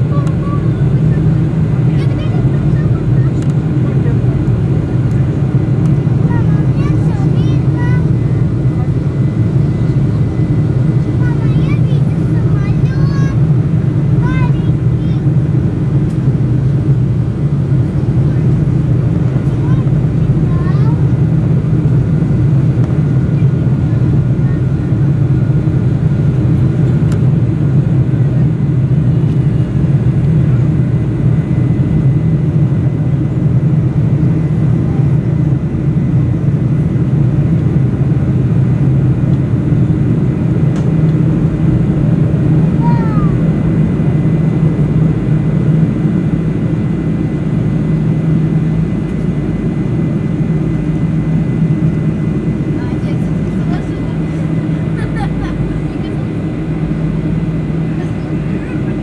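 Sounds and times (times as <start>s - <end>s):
jet engines roaring in cabin: 0.0s - 59.0s.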